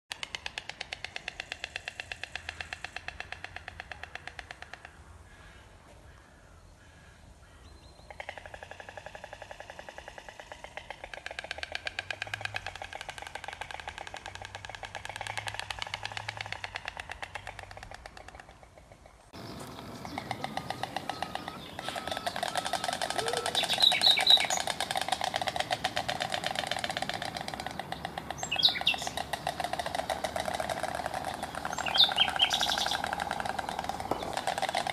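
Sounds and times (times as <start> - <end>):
storks clattering bills: 8.2 - 34.9.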